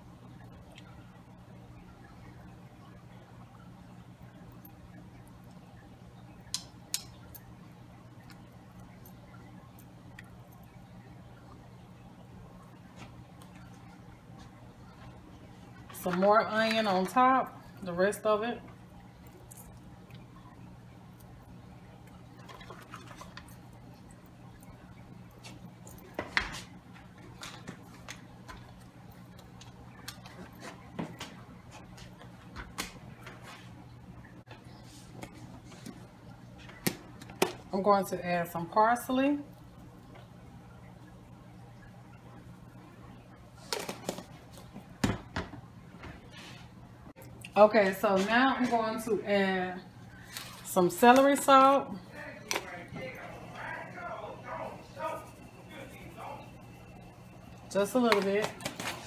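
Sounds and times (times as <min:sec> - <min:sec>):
steady low hum: 0:00.0 - 0:59.0
low hum: 0:48.8 - 0:59.0.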